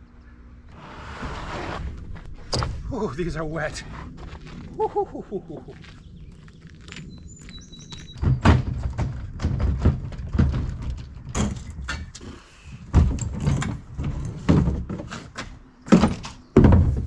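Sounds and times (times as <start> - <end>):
cart rolling over wooden planks: 5.8 - 17.0
heavy wooden knocks and clunks: 6.8 - 12.2, 12.8 - 17.0.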